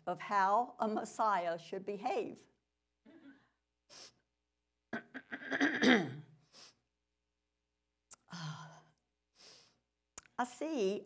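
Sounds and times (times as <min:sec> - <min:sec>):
person breathing: 0:08.3 - 0:09.9.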